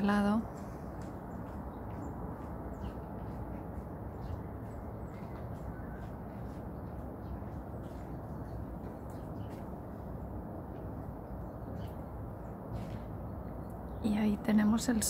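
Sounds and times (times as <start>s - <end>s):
city hum: 0.0s - 15.0s
small birds chirping: 0.0s - 15.0s.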